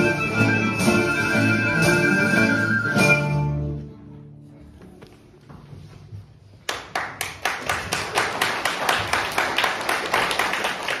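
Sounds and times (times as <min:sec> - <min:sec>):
audience applause: 0:06.6 - 0:11.0
sharp claps: 0:06.6 - 0:11.0.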